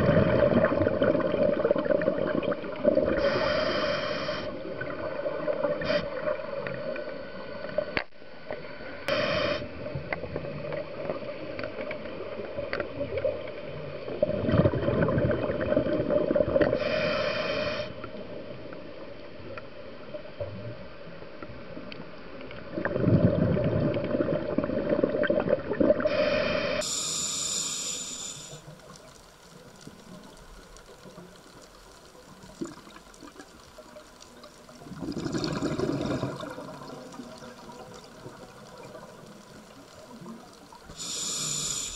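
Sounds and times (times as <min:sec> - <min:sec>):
exhaled air bubbling: 0:00.0 - 0:06.8, 0:13.9 - 0:17.0, 0:22.6 - 0:41.9
quiet underwater background: 0:00.0 - 0:41.9
inhalation hiss: 0:03.1 - 0:04.6, 0:05.8 - 0:06.3, 0:09.1 - 0:09.7, 0:16.8 - 0:18.1, 0:26.0 - 0:28.8, 0:40.9 - 0:41.9.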